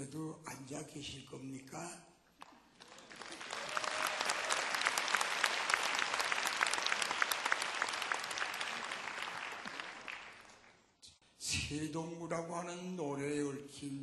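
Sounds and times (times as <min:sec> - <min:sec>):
audience applauding: 0:02.7 - 0:10.8.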